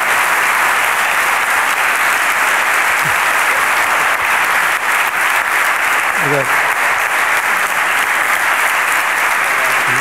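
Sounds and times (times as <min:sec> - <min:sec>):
audience applause: 0:00.0 - 0:10.0.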